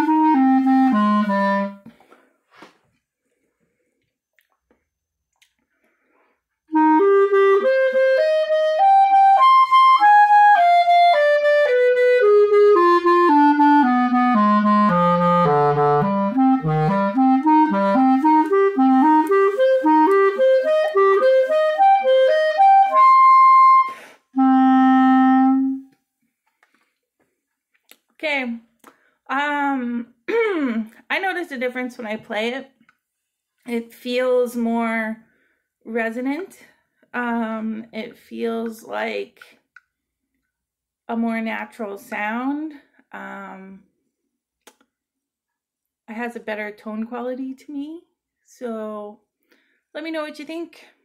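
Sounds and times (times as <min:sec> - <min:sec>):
clarinet playing: 0:00.0 - 0:02.0, 0:06.7 - 0:26.0.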